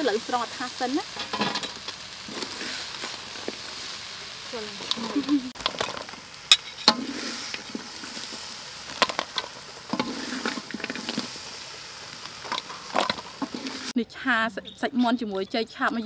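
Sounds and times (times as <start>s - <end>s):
faint steady hiss: 0.0s - 15.3s
metal utensils clinking on a wok: 1.1s - 2.5s, 4.7s - 7.0s.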